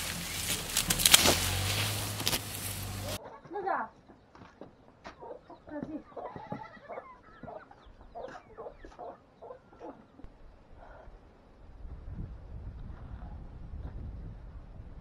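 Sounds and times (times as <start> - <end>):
chickens clucking: 5.1 - 10.3.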